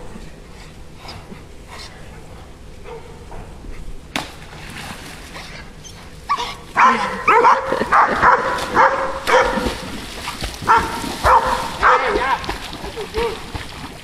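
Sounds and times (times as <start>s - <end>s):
puppies barking and yelping: 5.8s - 12.2s.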